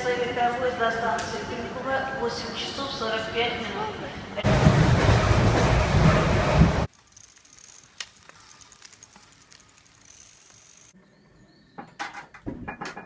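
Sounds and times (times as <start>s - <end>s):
train carriage rumble: 4.4s - 6.9s
folding bicycle clicking: 6.9s - 11.0s.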